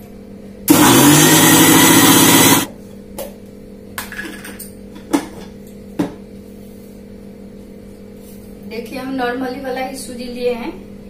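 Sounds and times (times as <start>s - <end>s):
mixer grinder motor whining: 0.7s - 2.7s.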